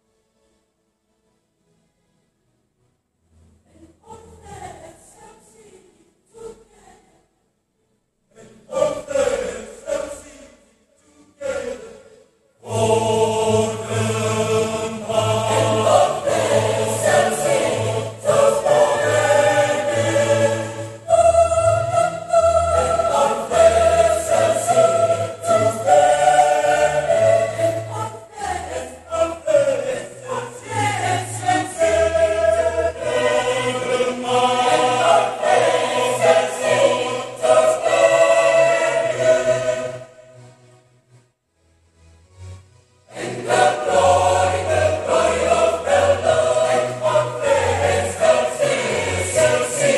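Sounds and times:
mixed choir singing: 0:08.3 - 0:40.4, 0:43.1 - 0:49.9.

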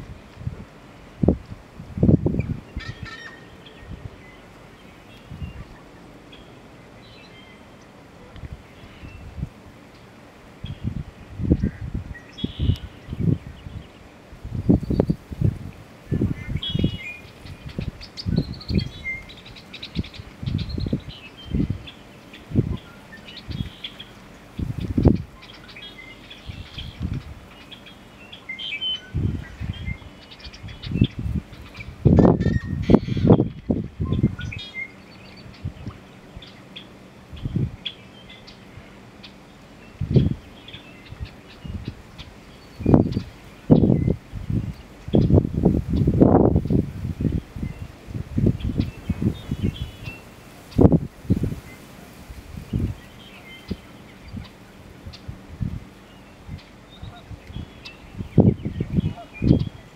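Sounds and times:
high songbird chirps: 0:02.2 - 0:08.0, 0:08.6 - 0:51.9, 0:52.6 - 0:59.9
bittern pumping call: 0:02.7 - 0:04.0, 0:16.1 - 0:33.5.

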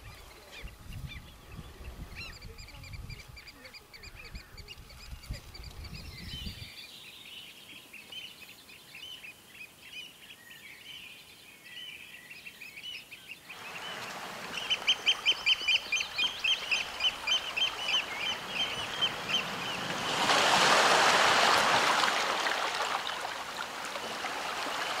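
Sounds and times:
birds calling: 0:00.0 - 0:25.0
high piping bird calls: 0:11.8 - 0:20.4
small waves washing on rocks: 0:13.6 - 0:25.0.

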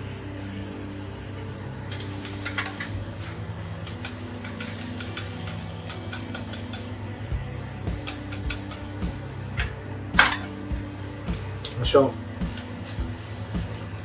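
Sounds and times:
egg sizzling faintly: 0:00.0 - 0:14.0
steady low hum: 0:00.0 - 0:14.0
chopsticks tapping and scraping pan: 0:01.9 - 0:07.0, 0:07.9 - 0:10.7.

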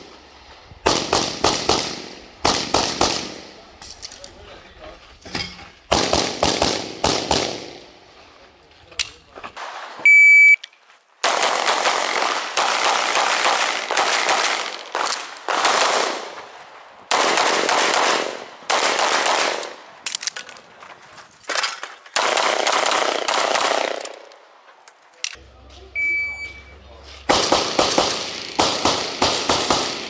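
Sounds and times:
rapid pistol shots: 0:00.8 - 0:03.5, 0:05.9 - 0:07.8, 0:11.2 - 0:16.4, 0:17.1 - 0:19.8, 0:22.2 - 0:24.1, 0:27.3 - 0:30.0
shot timer beep: 0:10.1 - 0:10.6, 0:26.0 - 0:26.7.

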